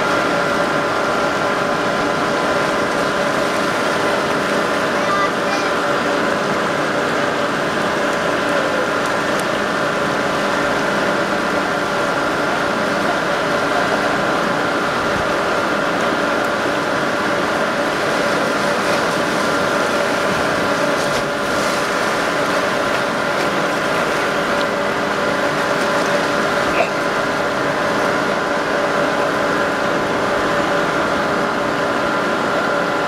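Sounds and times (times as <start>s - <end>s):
pump machine hum: 0.0s - 33.0s.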